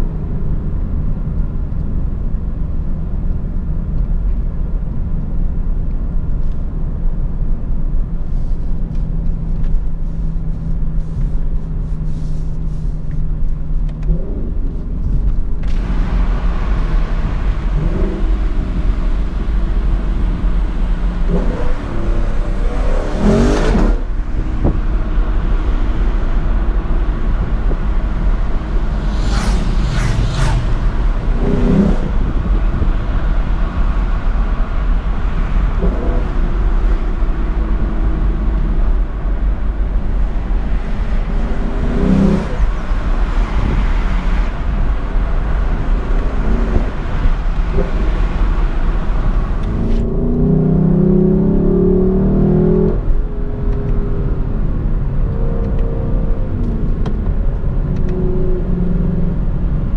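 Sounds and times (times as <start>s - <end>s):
road and wind noise: 0.0s - 59.9s
car engine running: 8.4s - 50.4s.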